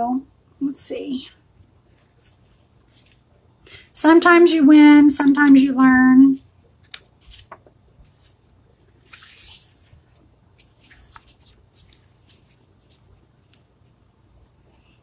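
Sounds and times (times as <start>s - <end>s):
glossy pages rustling: 6.8s - 13.7s.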